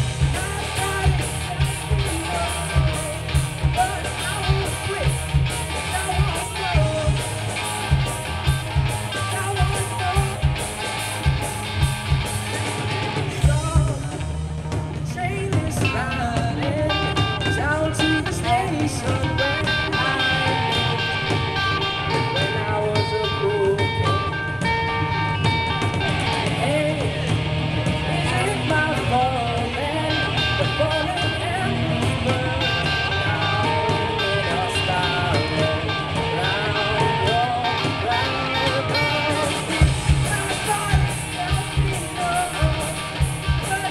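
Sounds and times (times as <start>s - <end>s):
drum kit beat: 0.0s - 43.9s
electric guitars: 0.0s - 43.9s
live rock band playing: 0.0s - 43.9s
woman singing: 15.1s - 21.2s, 26.6s - 27.2s, 28.1s - 43.9s.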